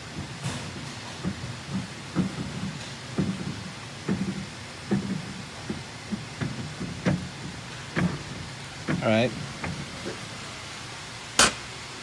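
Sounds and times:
printing press hum: 0:00.0 - 0:12.0
heavy clunk of press cylinders: 0:11.4 - 0:11.7.

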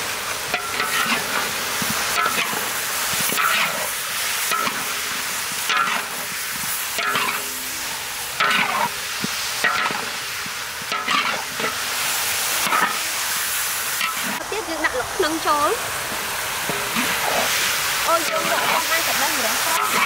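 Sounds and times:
fish sizzling in a wok: 0:00.0 - 0:20.0
metal spatula scraping a wok: 0:00.6 - 0:01.4, 0:02.1 - 0:09.0, 0:10.9 - 0:11.9, 0:12.6 - 0:14.4, 0:16.7 - 0:20.0.

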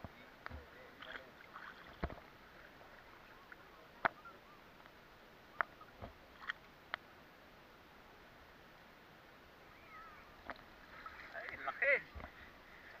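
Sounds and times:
seawater sloshing: 0:00.6 - 0:04.3, 0:10.3 - 0:13.0
small splashes: 0:01.0 - 0:04.1, 0:10.3 - 0:13.0.

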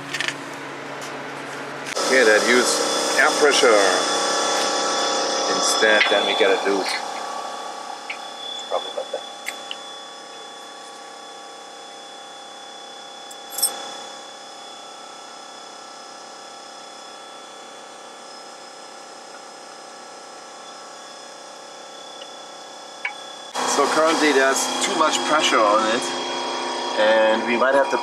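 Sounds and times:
mechanical hum: 0:00.0 - 0:28.0
loud noisy burst: 0:02.0 - 0:07.9.

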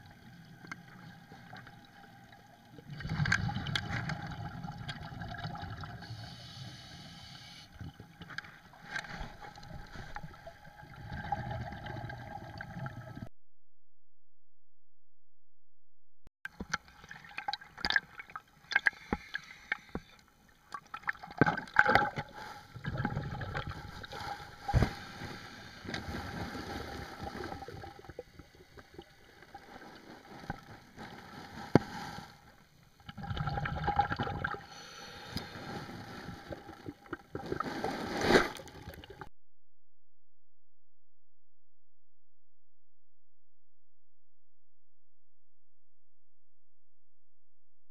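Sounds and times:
underwater gurgling and sloshing: 0:00.0 - 0:13.3, 0:16.5 - 0:39.3.

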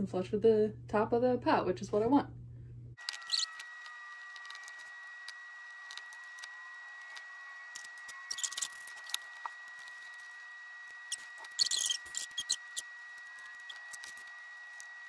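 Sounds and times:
small ticks of soil and plastic: 0:03.0 - 0:10.2.

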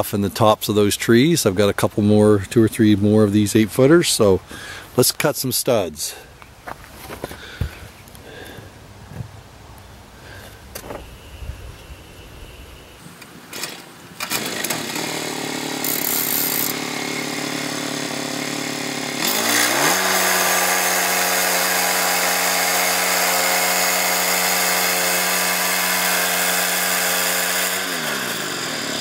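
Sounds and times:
petrol engine starting and revving: 0:13.5 - 0:29.0.

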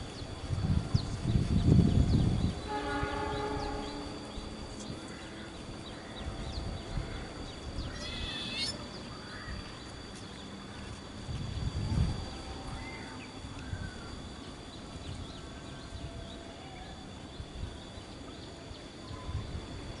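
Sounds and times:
distant locomotive horn: 0:02.4 - 0:05.6.

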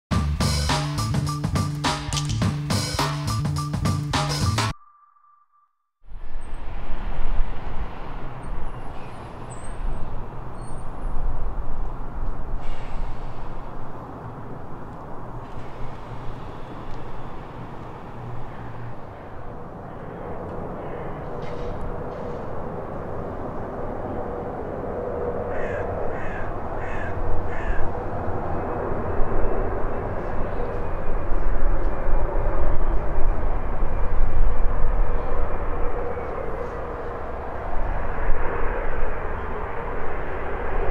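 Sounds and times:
distant jet engine: 0:06.2 - 0:40.9
bird cawing: 0:18.0 - 0:21.9, 0:25.4 - 0:28.0
wind on microphone: 0:26.5 - 0:40.9.

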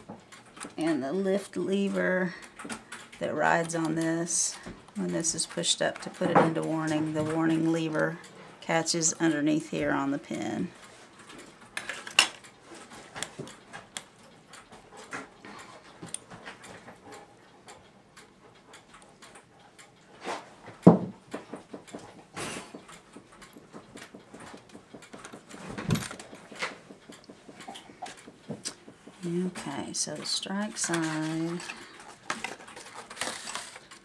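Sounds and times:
small metallic clicks and taps: 0:20.6 - 0:34.0.

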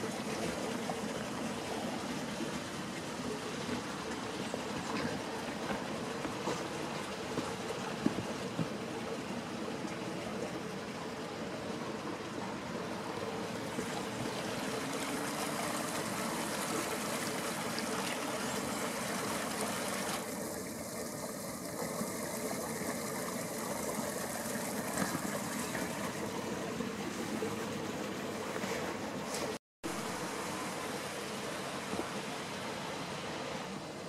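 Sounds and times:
water running along channel: 0:00.0 - 0:34.0.

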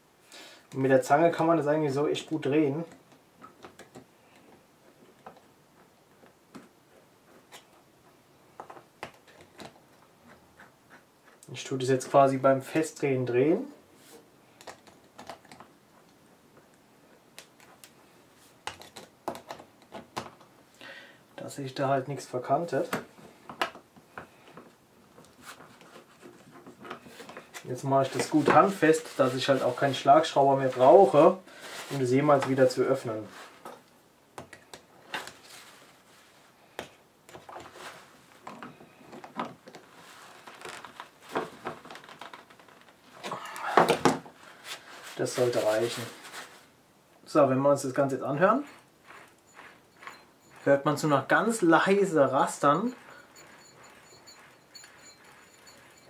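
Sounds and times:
paper towel rubbing: 0:48.4 - 0:56.0.

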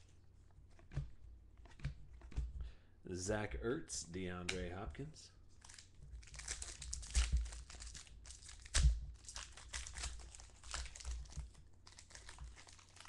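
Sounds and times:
foil wrappers crinkling and tearing: 0:05.6 - 0:13.0.

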